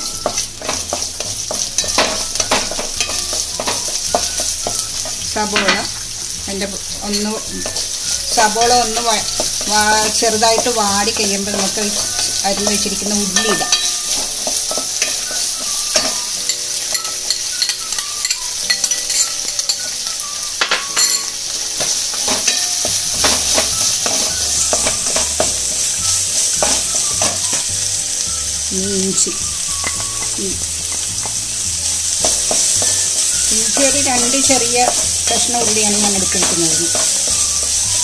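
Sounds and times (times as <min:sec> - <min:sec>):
spatula scraping pan: 0:00.0 - 0:20.2, 0:29.2 - 0:38.0
onions sizzling in oil: 0:00.0 - 0:38.0.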